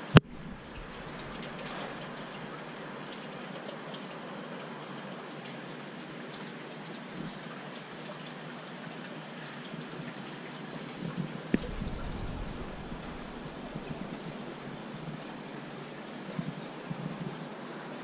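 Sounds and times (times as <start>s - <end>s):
aquarium water hissing: 0.0s - 4.9s, 10.8s - 16.9s.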